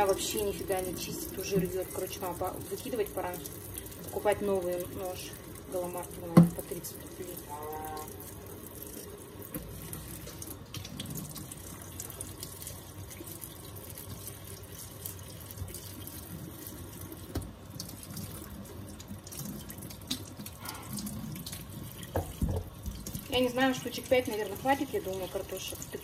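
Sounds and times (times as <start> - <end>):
tap running into sink: 1.4 - 2.0, 6.3 - 6.8, 17.2 - 17.6, 21.4 - 23.3.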